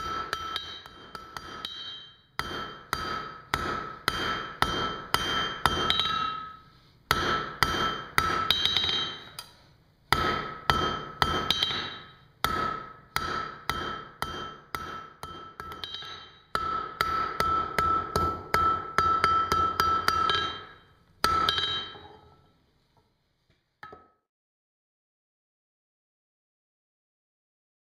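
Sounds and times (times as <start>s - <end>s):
hammer striking hot metal on anvil: 0.0s - 22.3s.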